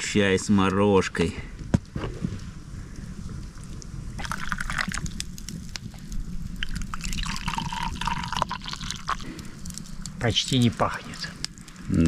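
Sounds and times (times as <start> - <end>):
tea pouring into a mug: 4.2 - 5.2, 6.6 - 9.8.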